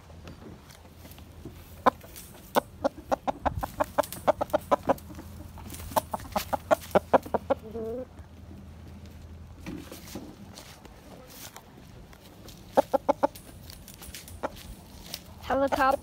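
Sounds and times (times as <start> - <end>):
rooster clucking: 1.6 - 8.2, 12.5 - 16.0.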